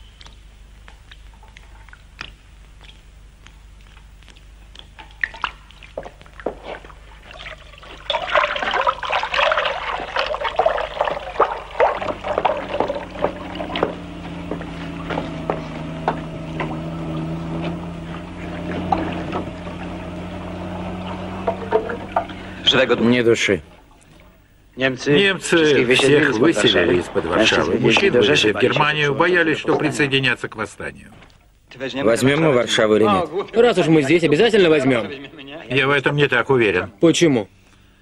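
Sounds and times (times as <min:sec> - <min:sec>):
low hum: 0:00.0 - 0:28.7
dog lapping water: 0:00.2 - 0:22.7
tap water splashing into basin: 0:04.8 - 0:22.6.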